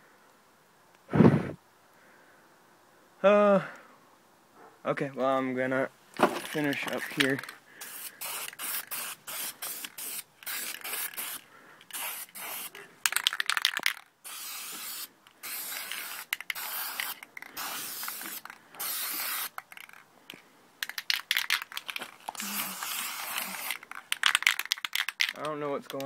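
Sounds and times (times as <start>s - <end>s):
spray paint can hissing: 6.7s - 20.0s, 20.8s - 26.0s.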